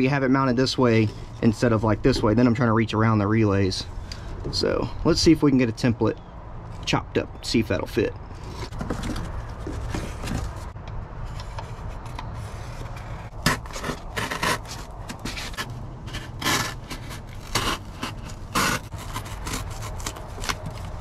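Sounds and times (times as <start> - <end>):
cardboard rubbing and shifting: 8.4 - 21.0.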